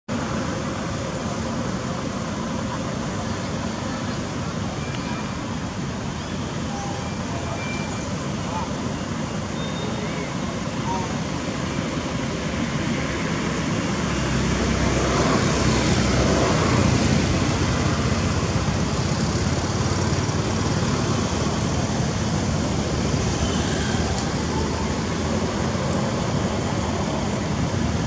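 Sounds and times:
rushing noise with low rumble: 0:10.2 - 0:28.0.

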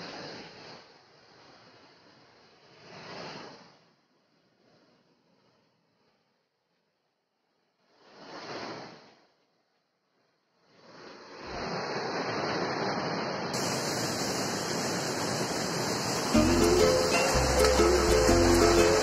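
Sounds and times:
river water rushing: 0:13.6 - 0:19.0
music: 0:16.3 - 0:19.0.

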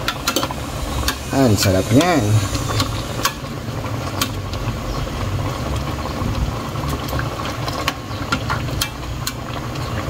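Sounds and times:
pot bubbling: 0:00.0 - 0:10.0
metal spatula clicking in pot: 0:07.8 - 0:09.4.

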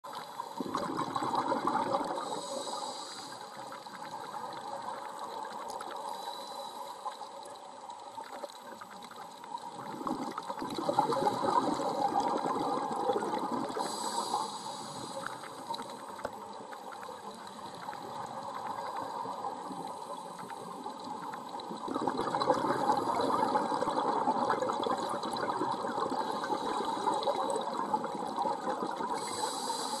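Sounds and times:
gurgling exhaled bubbles: 0:00.5 - 0:06.0, 0:09.7 - 0:16.2, 0:16.9 - 0:29.6
regulator inhalation hiss: 0:02.1 - 0:03.9, 0:06.0 - 0:07.3, 0:13.8 - 0:16.2, 0:29.1 - 0:30.0.

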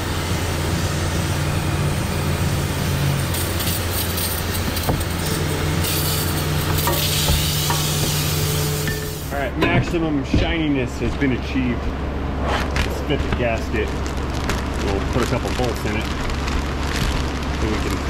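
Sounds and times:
low machine hum: 0:00.0 - 0:18.0
aerosol spray hissing bursts: 0:01.8 - 0:05.2, 0:05.8 - 0:09.3.

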